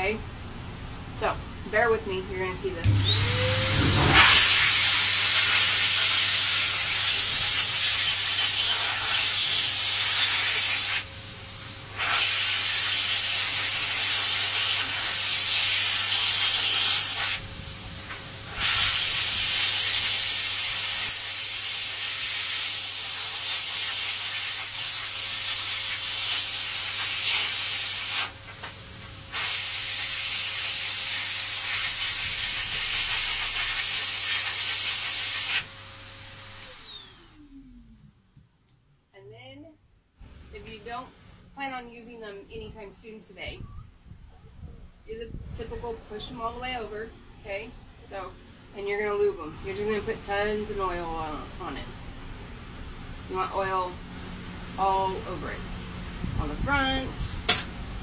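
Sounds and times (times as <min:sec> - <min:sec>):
dryer blowing air: 0:00.0 - 0:38.0, 0:43.5 - 0:58.0
motor hum: 0:02.7 - 0:04.6.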